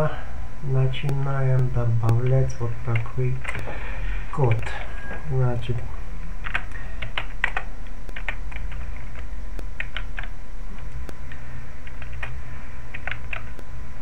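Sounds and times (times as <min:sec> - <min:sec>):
steady low hum: 0:00.0 - 0:14.0
computer keyboard typing: 0:01.5 - 0:03.8, 0:04.4 - 0:05.2, 0:06.4 - 0:13.7.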